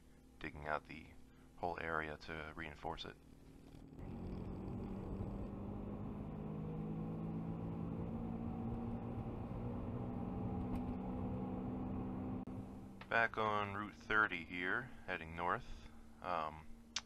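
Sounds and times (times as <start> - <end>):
car engine hum: 3.4 - 13.1
road and tyre noise: 3.6 - 13.1.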